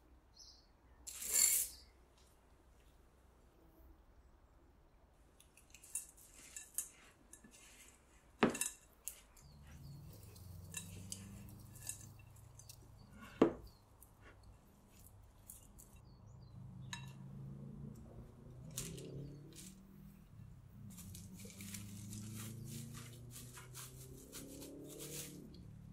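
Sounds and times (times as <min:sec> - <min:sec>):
spatula scraping a glass bowl: 0:06.0 - 0:13.8.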